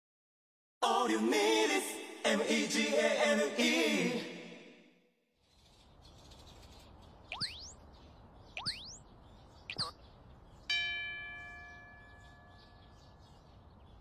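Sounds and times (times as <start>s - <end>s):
cartoon rising zips: 7.3s - 7.8s, 8.6s - 9.0s.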